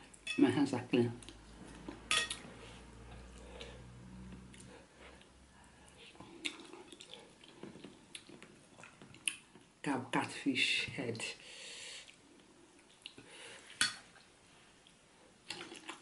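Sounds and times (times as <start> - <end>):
wet eating smacks and chewing: 6.0 - 9.7, 12.8 - 13.3, 14.8 - 16.0.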